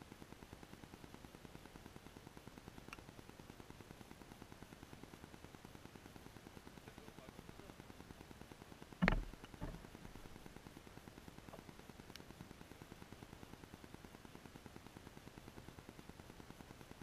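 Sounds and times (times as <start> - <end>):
sharp knocks: 9.0 - 9.8.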